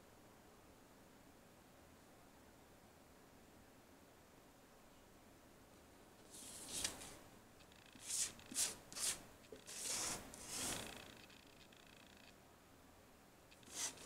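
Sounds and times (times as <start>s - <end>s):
paper sliding on tabletop: 6.3s - 7.2s, 8.0s - 11.2s, 13.6s - 14.0s.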